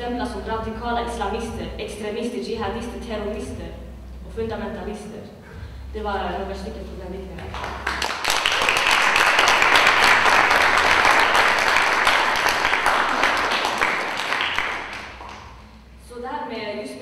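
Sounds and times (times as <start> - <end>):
audience applauding: 7.6 - 15.6.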